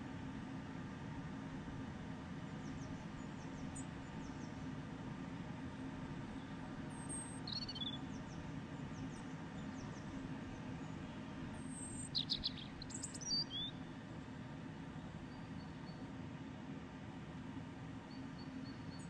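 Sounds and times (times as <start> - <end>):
steady low hum: 0.0 - 19.0
birds chirping: 11.8 - 13.8.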